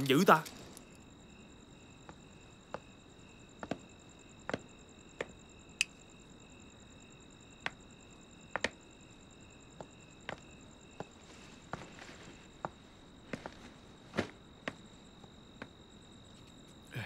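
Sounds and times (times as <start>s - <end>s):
crickets chirring: 0.0s - 17.0s.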